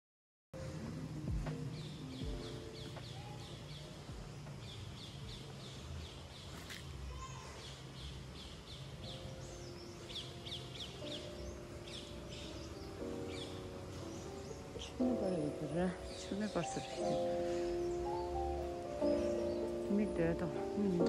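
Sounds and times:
bird calling high falling notes: 9.0s - 21.0s.

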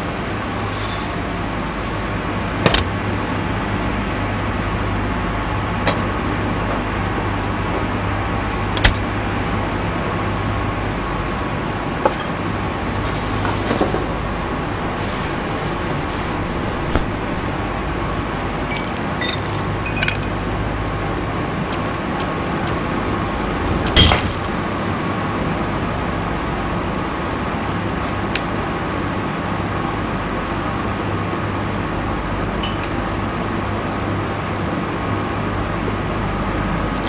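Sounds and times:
background hum: 3.2s - 34.0s
glass clinks: 18.7s - 20.3s.

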